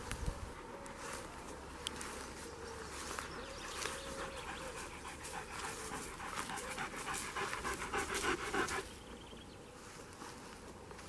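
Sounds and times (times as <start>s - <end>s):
dog panting quickly: 3.8s - 9.1s.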